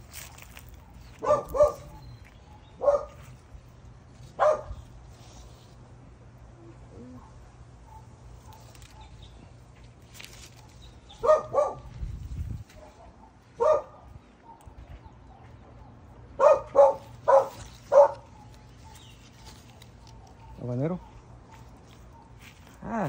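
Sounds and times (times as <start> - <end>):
dog barking: 1.2 - 2.2, 2.8 - 3.4, 4.4 - 4.8, 7.1 - 9.2, 10.6 - 12.0, 12.7 - 22.4.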